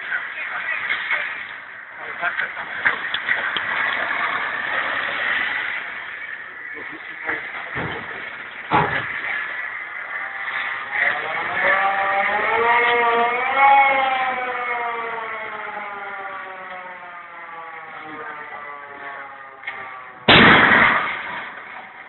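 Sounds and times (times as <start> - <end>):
warning siren wailing: 9.1 - 20.4
explosive blast: 20.2 - 22.0.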